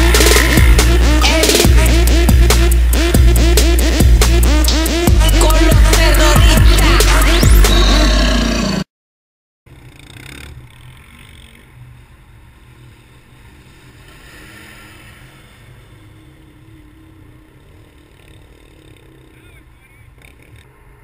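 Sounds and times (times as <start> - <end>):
wind: 0.0 - 5.1, 9.7 - 21.0
distant engines rumbling: 0.0 - 8.8, 9.7 - 21.0.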